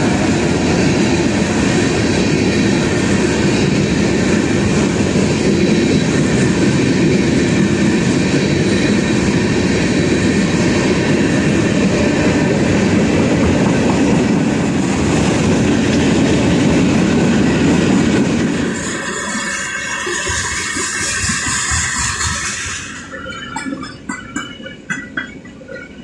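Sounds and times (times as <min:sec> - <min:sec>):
freight train wheels rumbling: 0:00.0 - 0:26.0.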